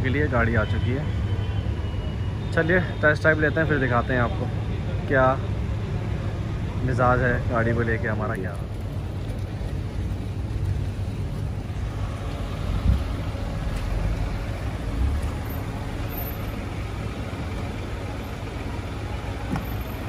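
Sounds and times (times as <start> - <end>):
car engine running: 6.0 - 20.0
thump: 19.5 - 19.8.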